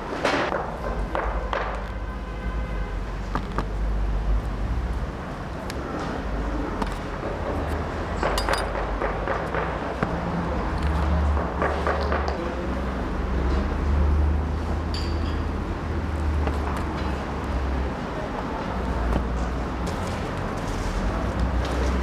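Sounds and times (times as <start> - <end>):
kitchen knocks and clinks: 8.2 - 9.6.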